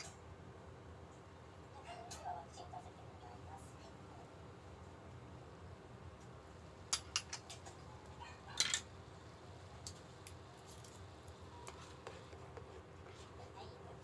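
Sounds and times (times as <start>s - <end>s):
kitchenware clicks and clinks: 6.9s - 7.8s, 8.5s - 8.9s.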